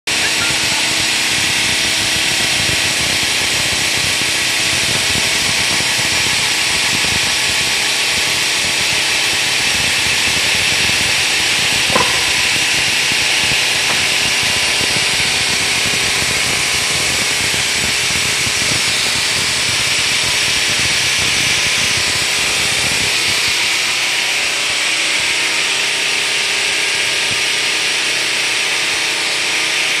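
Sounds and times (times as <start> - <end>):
stone grinding machine: 11.8 - 17.4
sharp click: 11.9 - 12.6.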